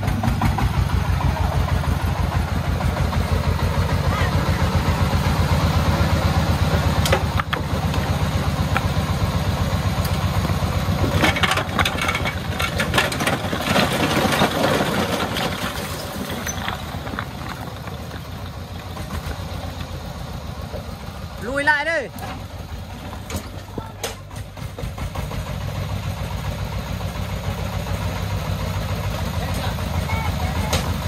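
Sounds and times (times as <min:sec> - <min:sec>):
diesel engine chugging: 0:00.0 - 0:31.0
bricks clattering onto ground: 0:11.0 - 0:18.2.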